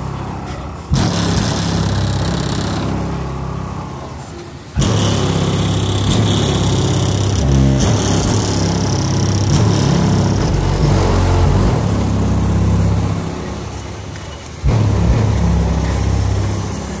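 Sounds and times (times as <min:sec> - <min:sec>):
heavy bass music from car: 0:00.9 - 0:03.6, 0:04.8 - 0:13.7, 0:14.7 - 0:17.0.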